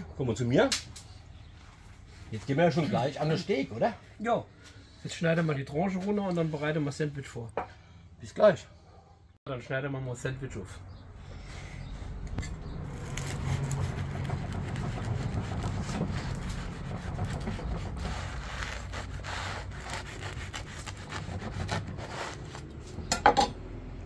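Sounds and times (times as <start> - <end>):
knife sawing through crusty bread: 12.8 - 22.8.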